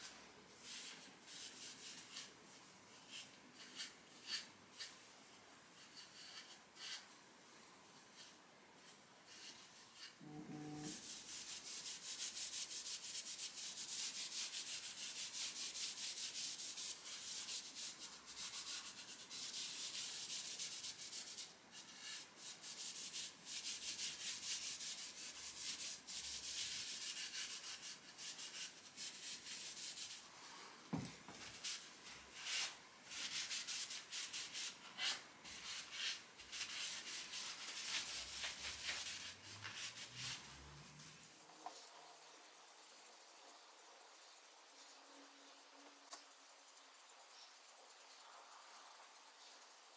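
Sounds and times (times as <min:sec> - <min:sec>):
rag wiping surface: 0:30.9 - 0:40.6.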